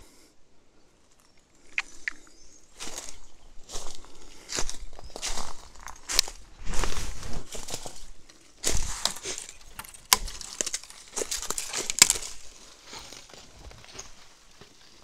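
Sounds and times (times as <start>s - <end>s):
footsteps crunching through dry leaves: 2.3s - 15.0s
twigs and branches snapping: 7.6s - 14.7s.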